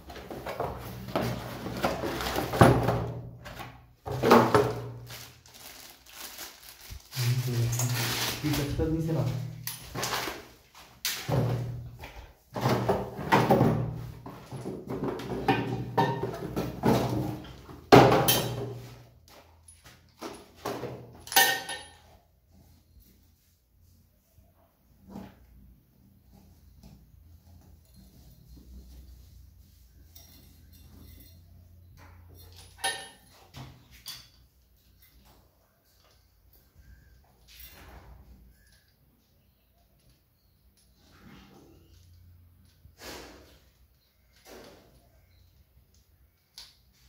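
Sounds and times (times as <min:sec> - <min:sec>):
parts clattering in ceramic basin: 0:00.0 - 0:05.3, 0:09.7 - 0:22.3, 0:26.9 - 0:36.5
cardboard and paper rustling: 0:00.0 - 0:10.8.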